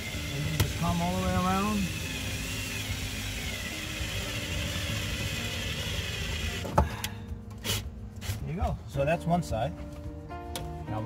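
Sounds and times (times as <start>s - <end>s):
cordless drill running: 0.0s - 6.7s.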